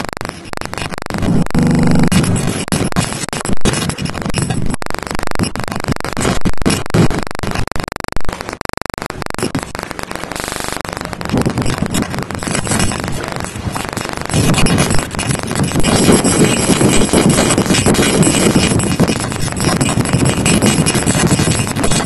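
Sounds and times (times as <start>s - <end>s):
glitchy stuttering digital noise: 0.0s - 22.0s
fast even pulsing: 1.3s - 2.6s.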